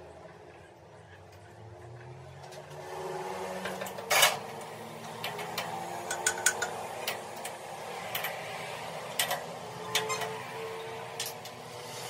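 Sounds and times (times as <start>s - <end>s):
metallic clicks and clinks: 3.6s - 8.5s, 9.1s - 10.4s.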